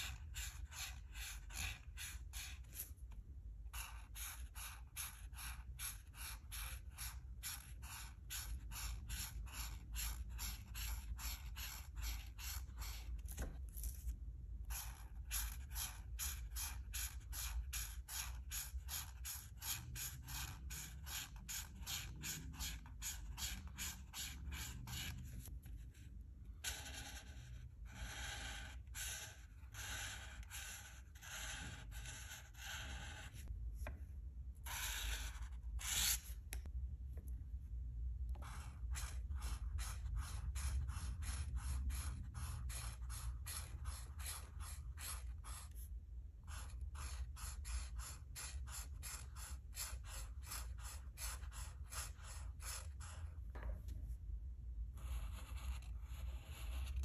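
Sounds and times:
marker scratching on paper: 0.0s - 34.0s, 34.6s - 36.6s, 38.3s - 53.8s, 54.9s - 57.0s.

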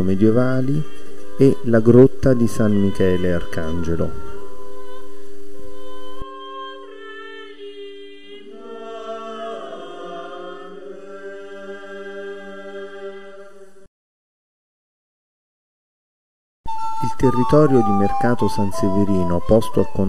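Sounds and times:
held drone notes: 0.0s - 13.9s, 16.7s - 20.0s
voices singing chant-like melody: 0.0s - 13.9s.

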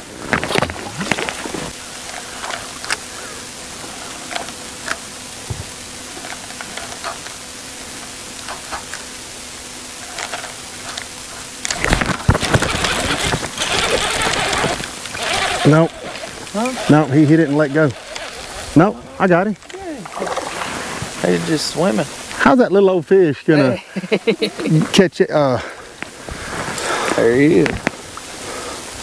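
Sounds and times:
water on a lake: 0.0s - 25.0s
faint steady hum: 0.0s - 29.0s
wind: 0.0s - 29.0s
small ticks: 4.0s - 5.1s.

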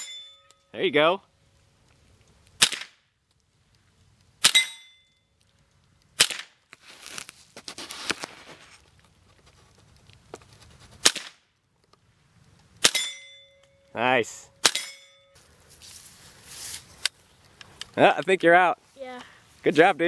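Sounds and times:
bullet ringing steel target: 0.0s - 0.8s, 4.4s - 5.2s, 12.8s - 13.9s, 14.5s - 15.4s
rifle shots: 2.6s - 3.0s, 6.2s - 6.5s, 11.0s - 11.4s, 14.6s - 15.0s.

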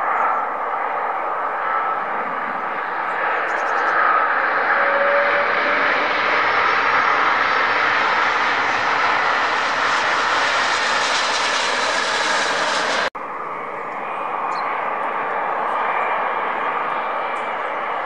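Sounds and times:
jet engines roaring with thrust reversers: 0.0s - 18.0s
jet on approach: 0.0s - 18.0s.

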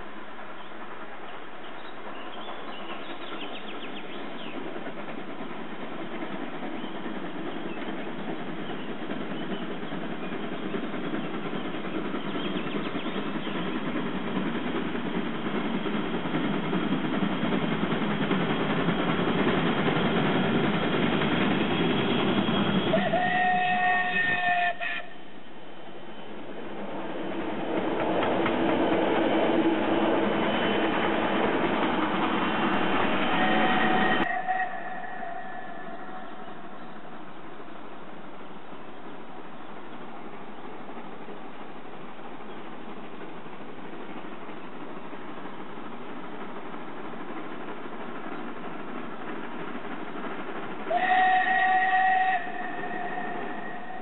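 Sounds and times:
carriages rolling past: 0.0s - 54.0s
steam locomotive running: 0.0s - 54.0s
steam whistle blast: 22.9s - 25.1s, 33.3s - 36.0s, 50.9s - 54.0s.

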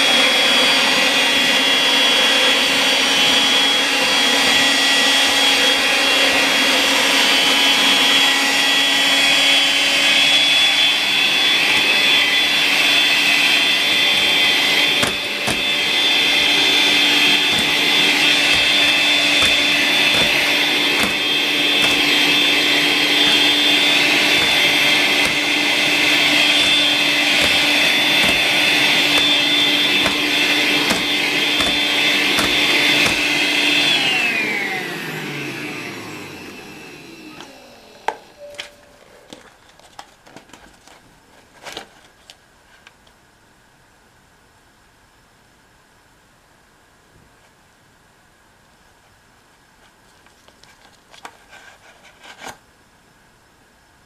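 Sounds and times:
cordless vacuum whining: 0.0s - 38.8s.

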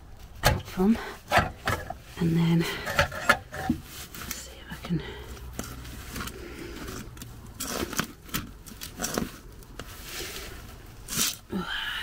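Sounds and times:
scrapes and knocks on metal clip: 2.8s - 3.8s.

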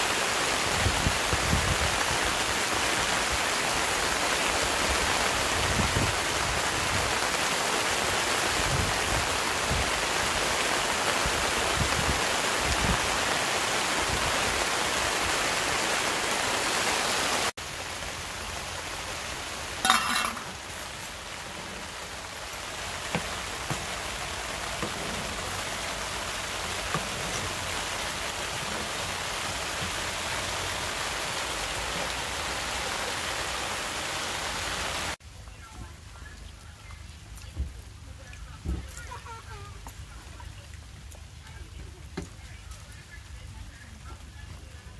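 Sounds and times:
heavy rain on a canopy: 0.0s - 44.9s
pan cooking on gas stove: 18.1s - 33.8s.

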